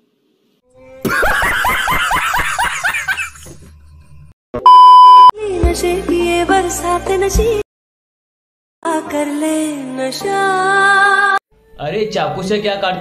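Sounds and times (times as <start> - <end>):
burst of laughter: 1.0 - 3.6
high test tone beep: 4.6 - 5.3
music with sung melody: 5.4 - 7.6, 8.9 - 12.0.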